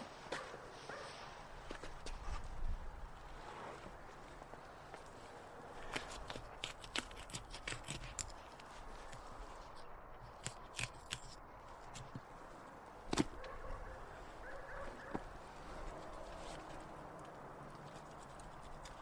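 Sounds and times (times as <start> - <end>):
knife clicking on carcass: 5.8 - 8.4.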